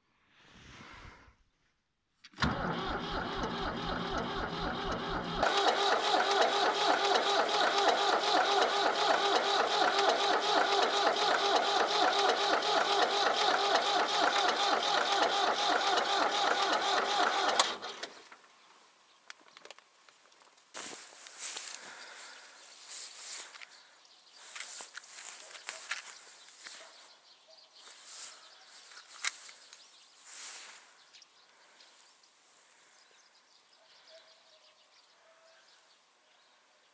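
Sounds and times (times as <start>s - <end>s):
diesel engine cranking: 2.4s - 18.2s.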